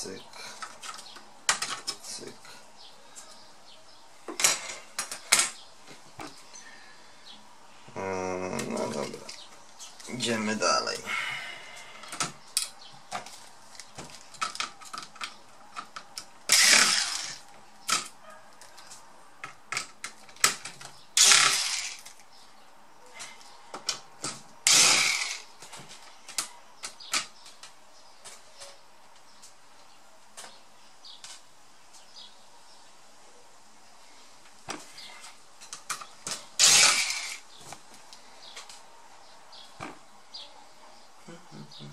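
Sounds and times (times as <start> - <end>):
electric screwdriver whirring: 16.5 - 17.4, 21.2 - 22.1, 24.7 - 25.4, 36.6 - 37.4.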